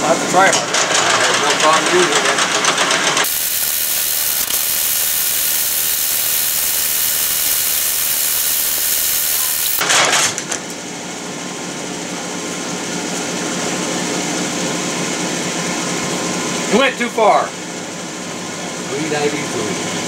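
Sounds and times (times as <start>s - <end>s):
metal lathe running: 3.2s - 9.8s.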